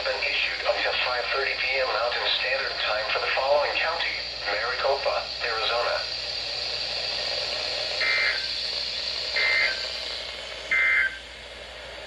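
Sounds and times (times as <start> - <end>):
radio static hiss: 0.0 - 12.0
short electronic data bursts: 7.9 - 10.1, 10.7 - 11.3.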